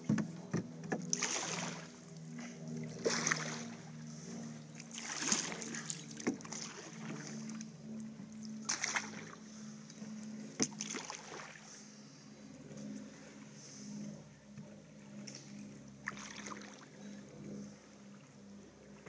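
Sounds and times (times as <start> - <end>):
paddle splashing in water: 0.0 - 7.7, 8.5 - 11.8, 15.2 - 17.0
steady low hum: 0.0 - 19.0.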